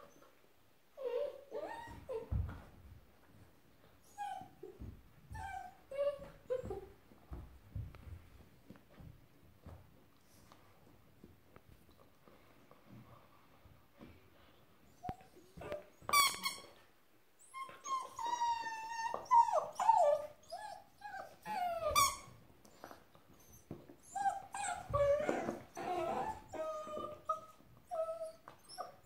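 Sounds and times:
puppy whining and yelping: 0:01.0 - 0:02.8, 0:04.0 - 0:07.0, 0:17.4 - 0:29.0.

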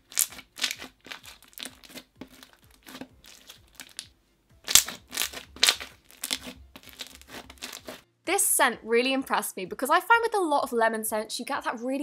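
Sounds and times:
hands squishing slime: 0:00.0 - 0:04.1, 0:04.7 - 0:08.0.

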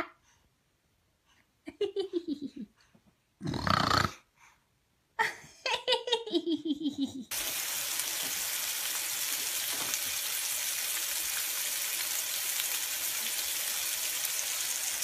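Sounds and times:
steam hissing: 0:07.3 - 0:15.0.

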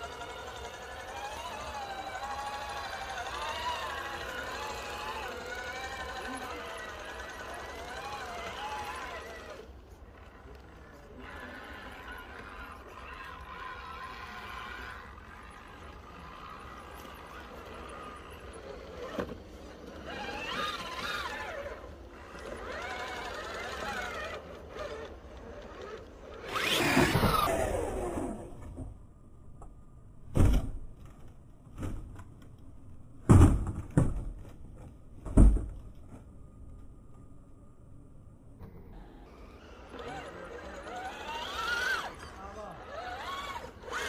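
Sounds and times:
electric motor whining: 0:00.0 - 0:28.8, 0:38.6 - 0:44.0.

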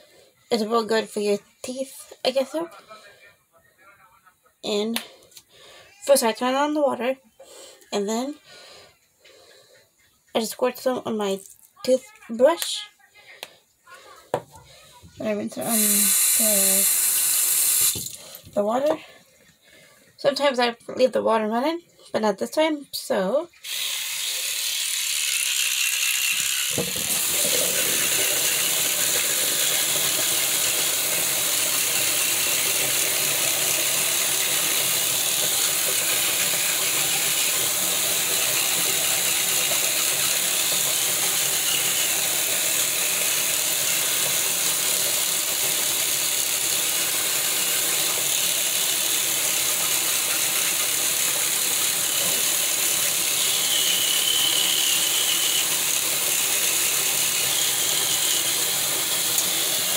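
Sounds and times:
electric toothbrush buzzing: 0:15.4 - 0:18.5, 0:23.6 - 0:59.9.

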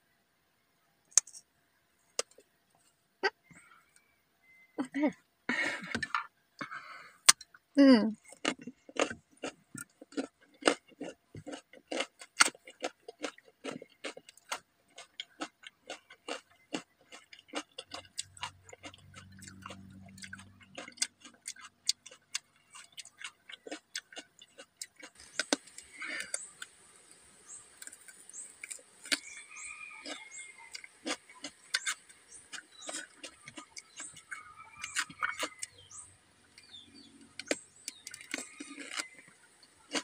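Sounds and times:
faint bird chirps: 0:03.3 - 0:05.3, 0:25.3 - 0:39.9
chewing raw vegetables: 0:08.1 - 0:40.0.

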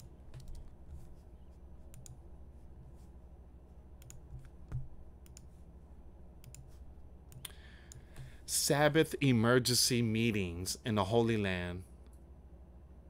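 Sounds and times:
computer mouse and keyboard clicks: 0:00.0 - 0:01.1, 0:04.0 - 0:05.5, 0:06.4 - 0:08.3
low steady hum: 0:00.0 - 0:13.0.

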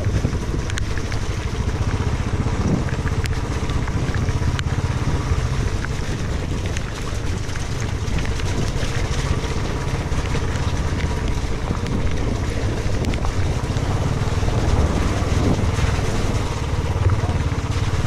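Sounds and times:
motorcycle engine running: 0:00.0 - 0:18.0
wind noise on microphone: 0:00.0 - 0:18.0.

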